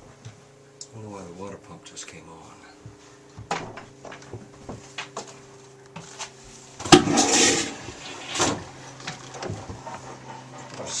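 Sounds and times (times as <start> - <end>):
water pump humming: 0.0 - 11.0.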